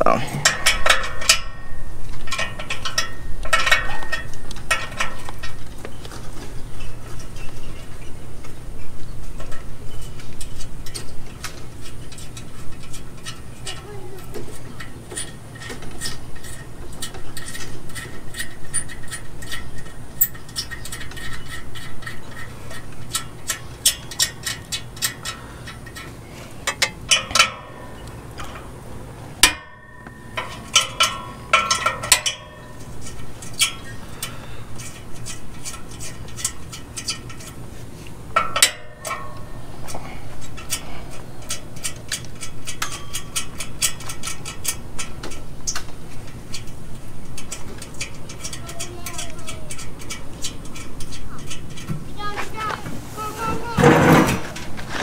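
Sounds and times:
ratchet wrench clicking: 0:15.2 - 0:26.1, 0:47.3 - 0:51.9
metal clinks: 0:29.4 - 0:37.5.

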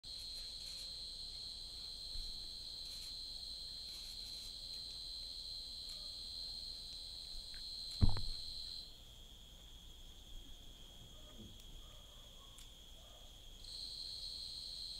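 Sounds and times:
insects droning: 0:00.1 - 0:14.9
low thump: 0:08.0 - 0:08.6.

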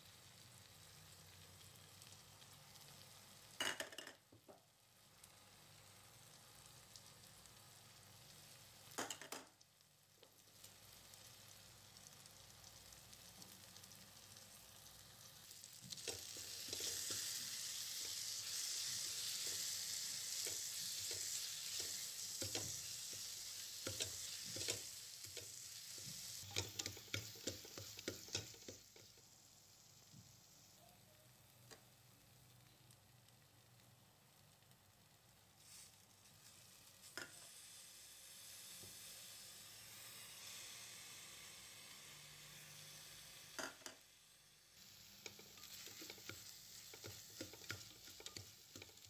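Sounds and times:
onions sizzling in oil: 0:00.0 - 0:49.0
spatula scraping and tapping pot: 0:15.9 - 0:29.2, 0:37.0 - 0:37.5, 0:43.6 - 0:44.0, 0:45.1 - 0:49.0.

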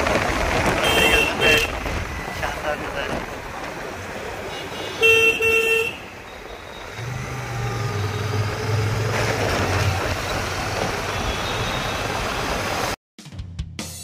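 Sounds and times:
motorcycle engine drone: 0:00.0 - 0:13.0
wind and road noise: 0:00.0 - 0:13.0
vehicle horn honking: 0:00.8 - 0:02.6, 0:04.4 - 0:07.3, 0:11.1 - 0:12.2.

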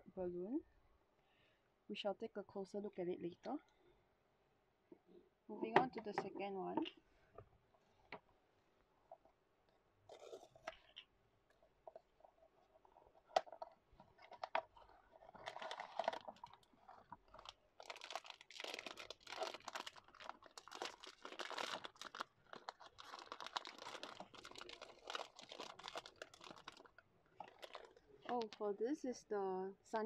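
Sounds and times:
foil bag crinkling: 0:15.2 - 0:28.0.

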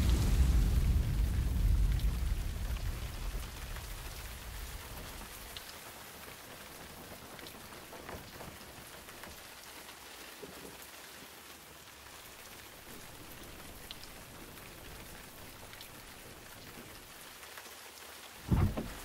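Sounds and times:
thunder rumble: 0:00.0 - 0:05.6, 0:18.4 - 0:19.0
raindrops ticking: 0:00.0 - 0:19.0
steady rain: 0:00.0 - 0:19.0.

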